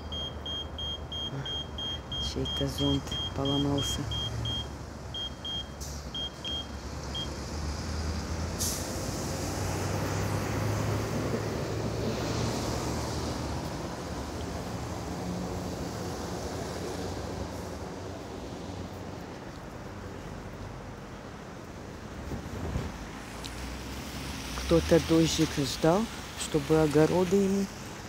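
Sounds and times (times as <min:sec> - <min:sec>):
tyres hissing on wet asphalt: 0:06.9 - 0:20.8, 0:21.9 - 0:28.0.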